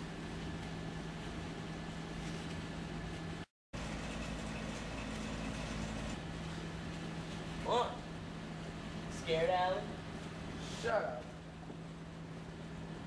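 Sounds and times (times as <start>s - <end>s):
low mechanical hum: 0.0s - 13.0s
background hiss: 6.2s - 13.0s.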